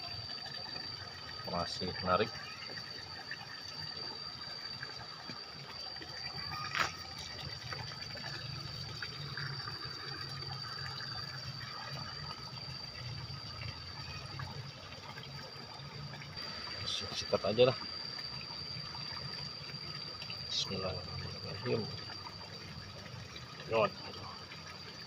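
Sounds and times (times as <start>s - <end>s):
water trickling: 0.0s - 25.0s.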